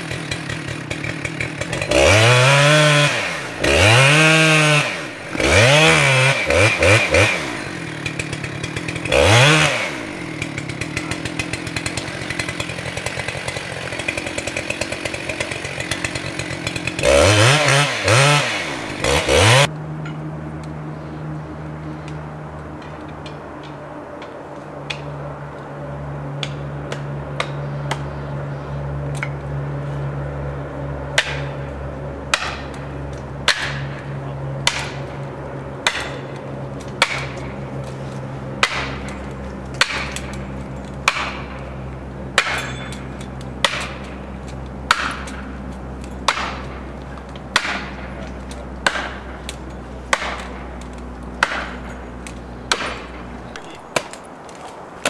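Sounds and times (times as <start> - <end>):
hammer striking metal wedge: 35.8 - 36.2, 42.4 - 44.0.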